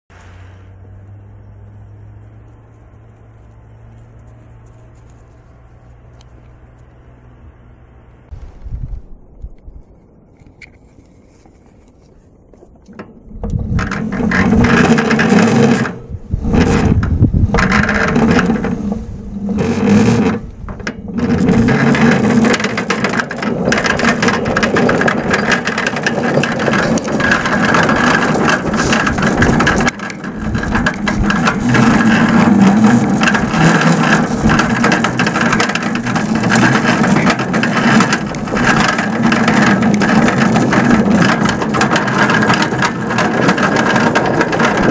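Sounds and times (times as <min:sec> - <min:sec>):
miniature locomotive gears whirring: 0:12.8 - 0:44.9
wheels rattling on rail: 0:12.9 - 0:44.9.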